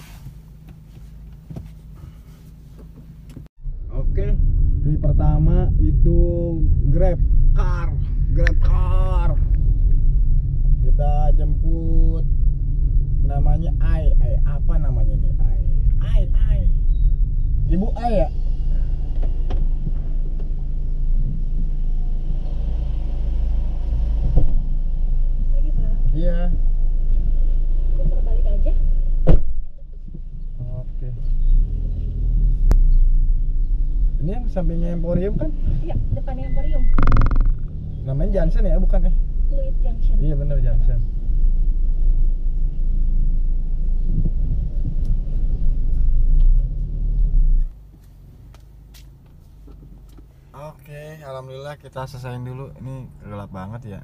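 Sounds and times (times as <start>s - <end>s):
car engine rumble from inside: 0.0s - 54.0s
brief knock: 37.0s - 37.6s.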